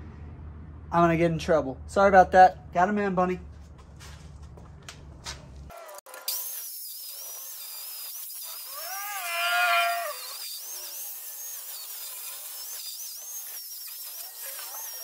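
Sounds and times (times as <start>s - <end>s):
angle grinder grinding steel: 5.7s - 15.0s
grinder squeal: 5.7s - 15.0s.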